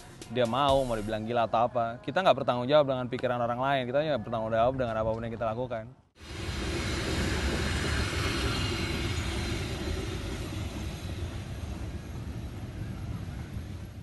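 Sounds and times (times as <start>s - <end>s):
train passing on rails: 6.2s - 14.0s.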